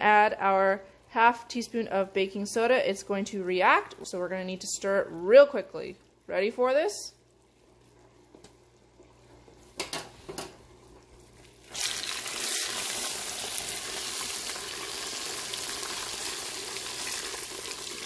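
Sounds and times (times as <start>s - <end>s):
caramel sizzling and hissing: 11.3s - 18.0s.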